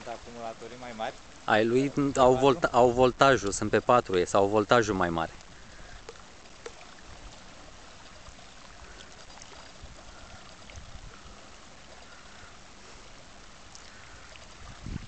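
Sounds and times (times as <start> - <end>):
water lapping against shore: 0.0 - 15.0
wind rumble on microphone: 9.6 - 11.6, 13.9 - 15.0.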